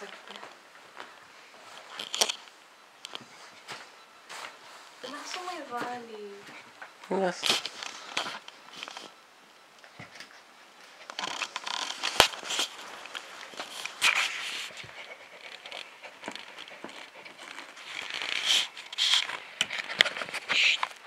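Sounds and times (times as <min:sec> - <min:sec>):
rustling: 0:00.0 - 0:09.2, 0:09.8 - 0:21.0
puppy scratching on carpet: 0:11.0 - 0:21.0.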